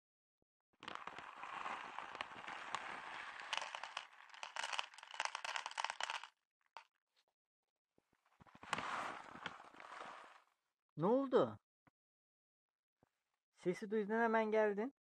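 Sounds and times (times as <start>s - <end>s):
kibble landing in plastic bowl: 0.8s - 6.3s
plastic bag crinkling: 0.8s - 6.3s.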